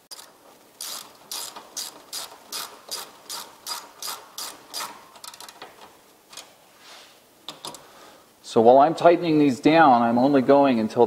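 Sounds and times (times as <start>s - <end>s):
socket ratchet clicking: 0.1s - 5.7s.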